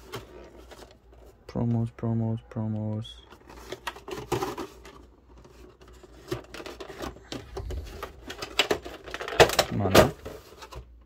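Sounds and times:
plastic packaging crinkling: 0:03.3 - 0:10.8.

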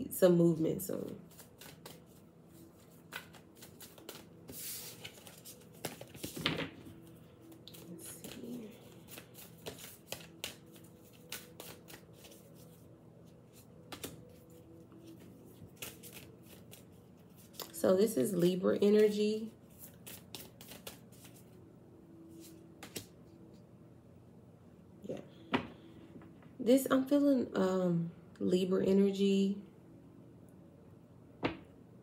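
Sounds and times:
cards being shuffled: 0:01.3 - 0:12.8, 0:13.5 - 0:21.6, 0:22.3 - 0:23.2.

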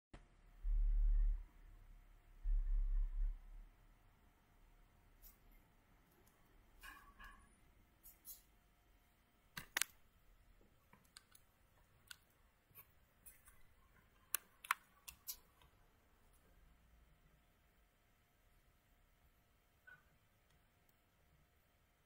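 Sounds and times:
device handling clicks: 0:09.6 - 0:10.0, 0:14.3 - 0:15.4.

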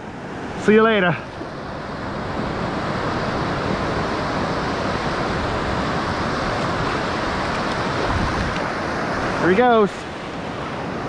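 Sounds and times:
surf washing around legs: 0:00.0 - 0:11.0
wind on microphone: 0:02.0 - 0:09.4.

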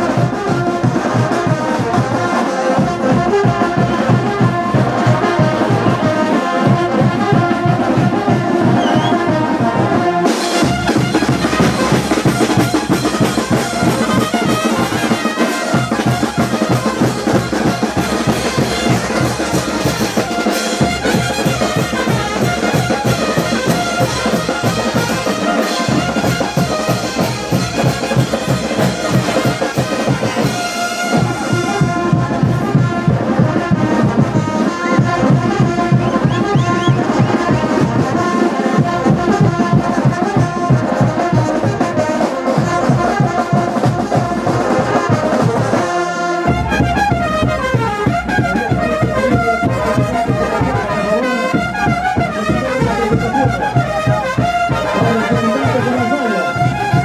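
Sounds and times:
brass band playing: 0:00.0 - 0:57.0
bass drum beat: 0:35.0 - 0:40.4, 0:46.5 - 0:57.0.

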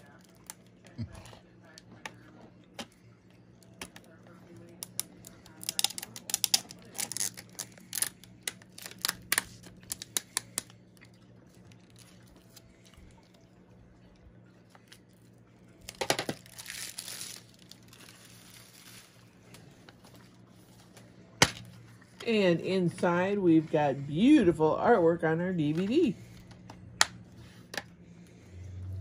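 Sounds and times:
plastic wrap crinkling: 0:04.9 - 0:10.9, 0:15.8 - 0:21.0.

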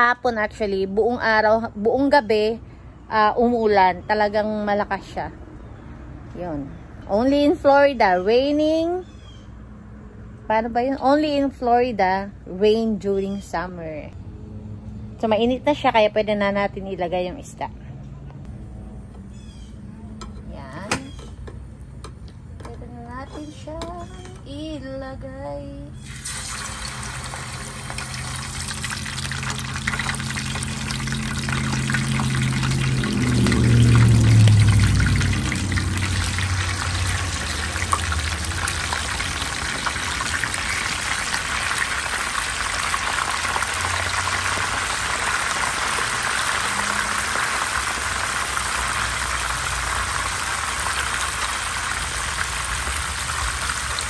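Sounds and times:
fish sizzling in oil: 0:26.0 - 0:54.0
low rumble: 0:27.1 - 0:48.4.

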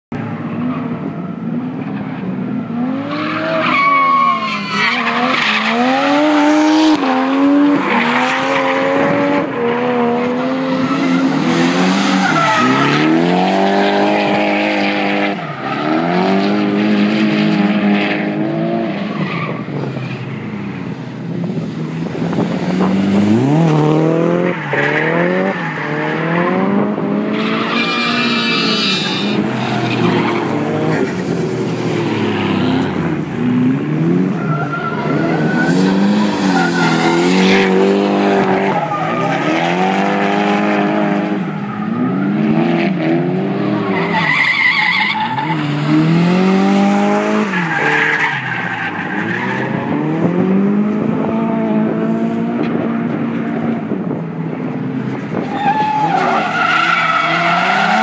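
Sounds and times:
car engines revving hard: 0:00.2 - 0:58.0
tires squealing and skidding: 0:00.3 - 0:20.7, 0:21.5 - 0:50.6, 0:55.2 - 0:58.0.

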